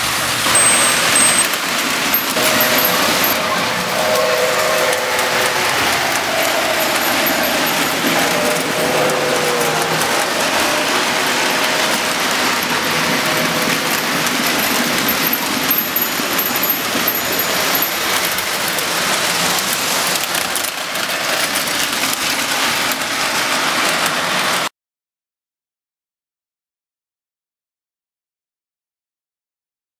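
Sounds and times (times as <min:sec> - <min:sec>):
toy train wheels rattling on track: 0:00.5 - 0:24.7
small electric motors: 0:13.4 - 0:20.7.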